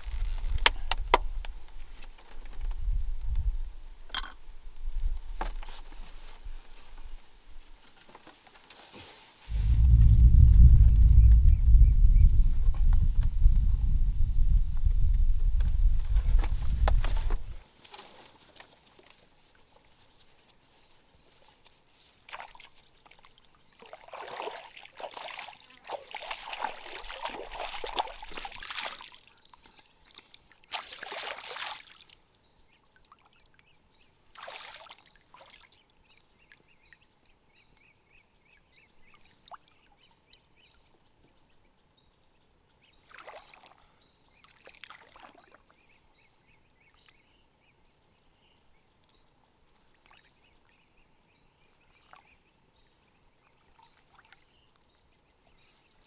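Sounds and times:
water splashing: 23.8s - 29.3s, 30.7s - 32.1s.

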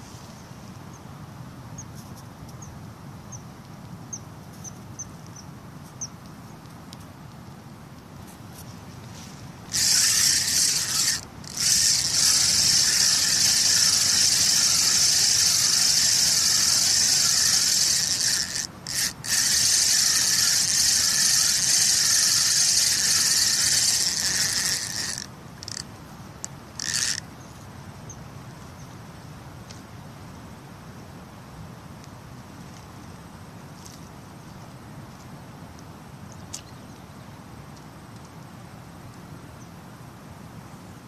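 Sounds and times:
fishing reel whirring: 9.7s - 25.9s, 26.7s - 27.2s.

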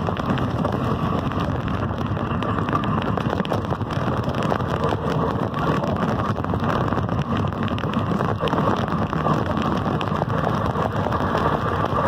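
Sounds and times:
riding lawn mower engine: 0.0s - 12.0s.

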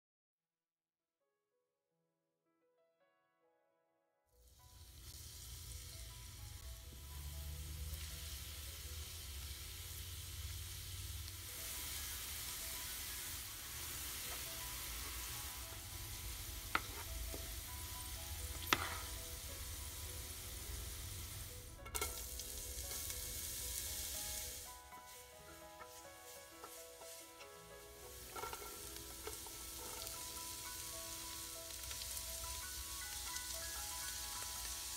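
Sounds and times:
garlic sizzling in fat: 4.4s - 34.9s
spatula tapping pan: 16.6s - 17.6s, 18.5s - 19.2s, 26.6s - 30.8s.

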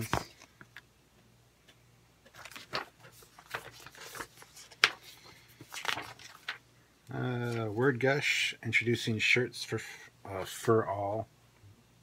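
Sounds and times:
paper pages rustling: 2.2s - 6.7s, 7.4s - 7.9s.

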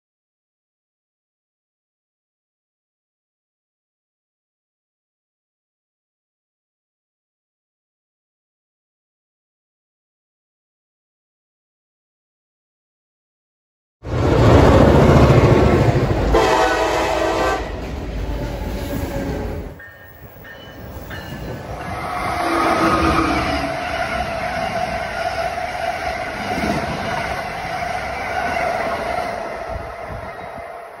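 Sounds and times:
freight train rumbling: 14.0s - 31.0s
wheels rushing on rail: 14.0s - 31.0s
train horn: 16.3s - 19.7s, 21.9s - 31.0s.

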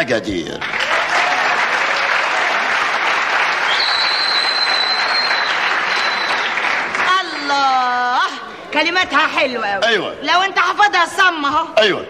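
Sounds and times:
audience applauding: 0.6s - 7.6s
high whistle: 3.6s - 6.6s.

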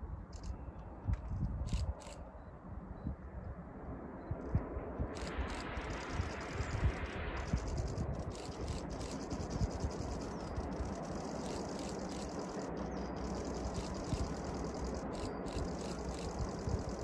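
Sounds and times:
wind buffeting microphone: 0.0s - 17.0s
distant steam locomotive rushing: 5.1s - 17.0s.

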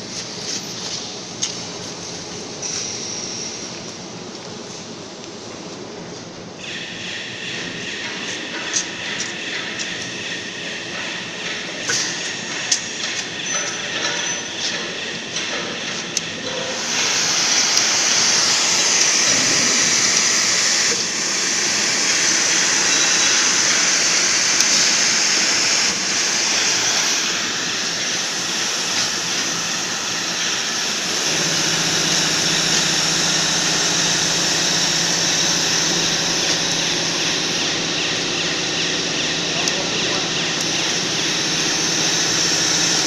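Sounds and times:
welding equipment hiss: 16.6s - 39.8s, 40.6s - 43.0s.

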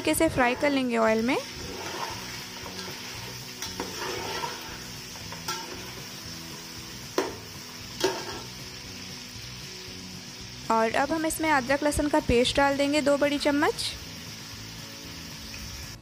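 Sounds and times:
meat sizzling in oil: 0.0s - 16.0s
spatula scraping a metal pot: 1.4s - 6.0s.

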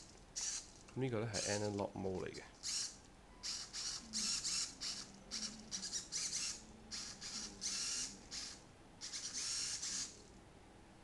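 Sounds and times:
servos whirring: 0.4s - 0.8s, 2.6s - 10.3s.

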